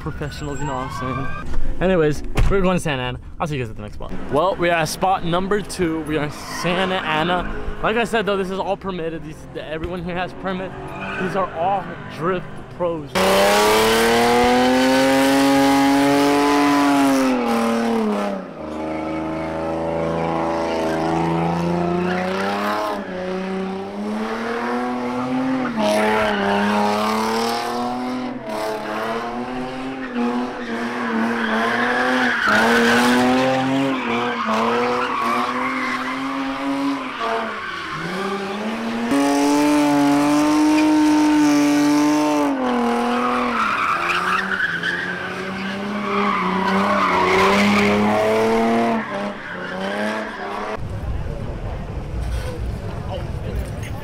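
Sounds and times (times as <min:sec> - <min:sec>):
tyres squealing: 0:00.0 - 0:01.4, 0:29.9 - 0:39.2, 0:43.0 - 0:50.8
car engine revving: 0:04.1 - 0:54.0.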